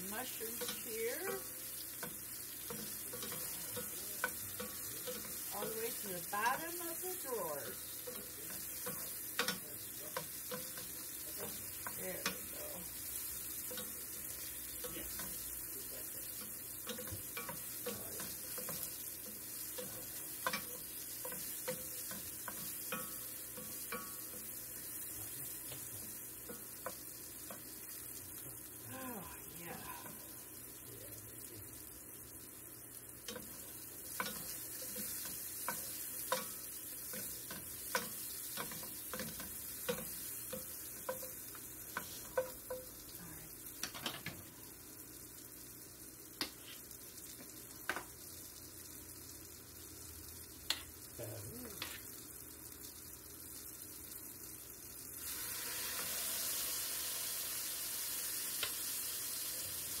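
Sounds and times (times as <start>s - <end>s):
food sizzling in frying pan: 0.0s - 60.0s
spatula tapping against pan: 0.5s - 5.8s, 7.7s - 12.6s, 16.2s - 25.0s, 33.2s - 43.0s.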